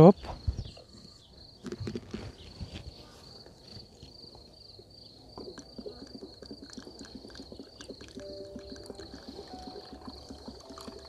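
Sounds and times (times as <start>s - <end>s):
cricket chirping: 0.0s - 11.0s
syrup gurgling through funnel: 5.4s - 11.0s.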